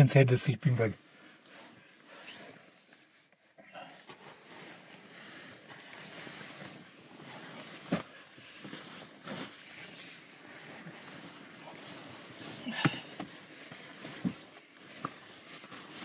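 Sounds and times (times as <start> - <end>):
sleeping bag rustling: 1.1 - 16.0.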